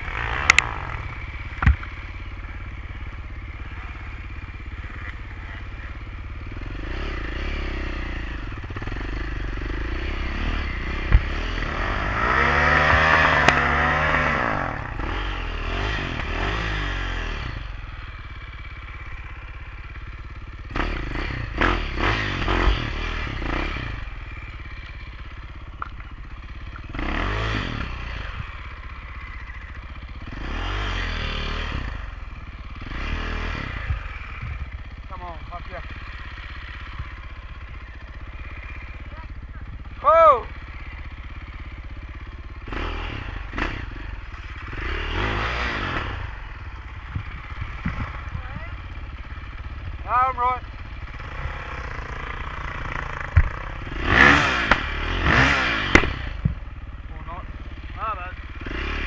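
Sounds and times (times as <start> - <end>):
motorbike engine revving: 0.0 - 59.0
bike knocks and clatter: 1.5 - 2.1.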